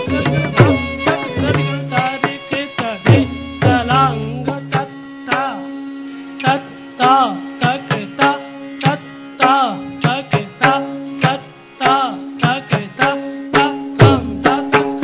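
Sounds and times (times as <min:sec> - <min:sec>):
plucked string notes bending: 0:00.0 - 0:02.2
hand drum strokes: 0:00.0 - 0:05.8, 0:06.4 - 0:15.0.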